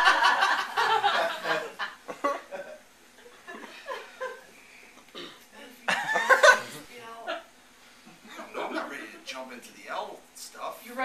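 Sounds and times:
people laughing: 0:00.0 - 0:04.5, 0:05.8 - 0:07.4.

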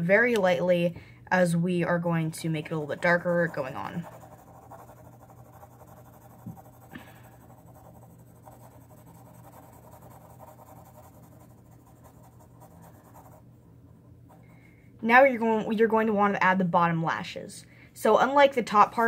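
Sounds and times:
pencil scratching on paper: 0:02.5 - 0:13.5.

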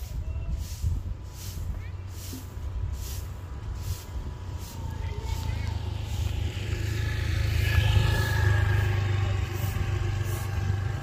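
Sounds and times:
motorcycle engine running: 0:04.5 - 0:11.0.

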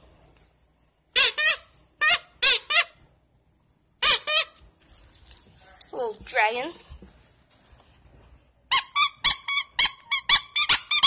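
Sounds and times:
squeaky toy honking: 0:01.2 - 0:03.1, 0:04.0 - 0:04.6, 0:08.7 - 0:11.0.

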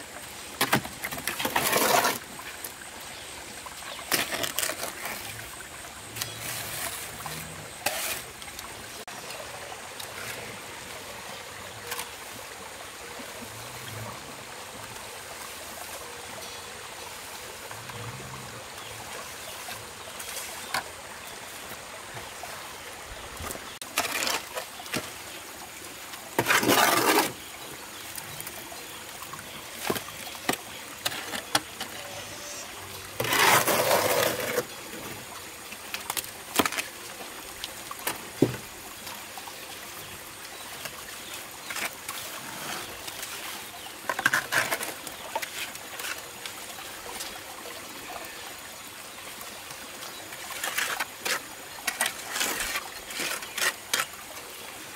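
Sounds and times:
stream trickling over stones: 0:00.0 - 0:54.9
hand tools scraping wet concrete: 0:00.6 - 0:02.2, 0:04.1 - 0:05.4, 0:06.2 - 0:08.7, 0:23.8 - 0:25.0, 0:26.4 - 0:27.5, 0:29.9 - 0:34.8, 0:41.6 - 0:46.2, 0:50.5 - 0:54.2.

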